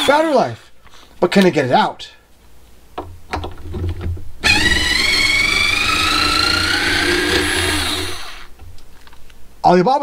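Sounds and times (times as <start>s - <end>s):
electric screwdriver whine: 4.4s - 8.5s.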